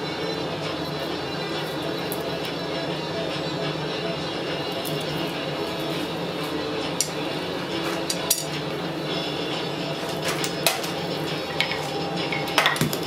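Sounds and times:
steady hum: 0.0s - 13.0s
metal tools clinking on anvil: 8.1s - 8.6s.

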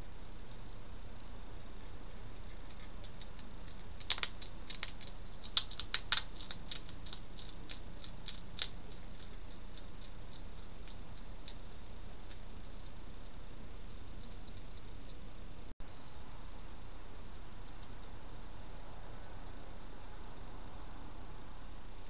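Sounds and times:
steady background hiss: 0.0s - 22.0s
hedgehog crunching food: 0.4s - 15.4s.

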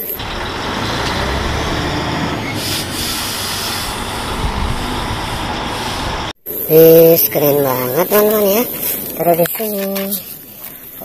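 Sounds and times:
road and wind noise: 0.0s - 6.4s
truck engine rumble: 0.0s - 9.5s.

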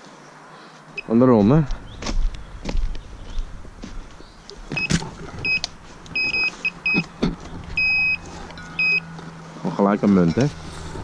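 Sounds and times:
metal detector high beeps: 4.8s - 7.1s, 7.8s - 9.1s.

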